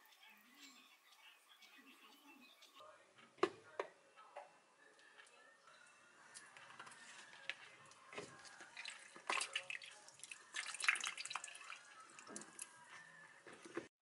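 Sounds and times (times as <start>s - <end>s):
liquid pouring into plastic jug: 8.1s - 12.8s.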